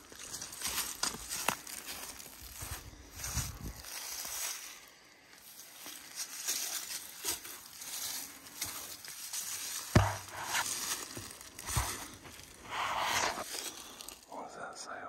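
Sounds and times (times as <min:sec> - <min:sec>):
footsteps crunching through dry brush: 0:00.0 - 0:14.4
sharp knock: 0:09.9 - 0:10.6.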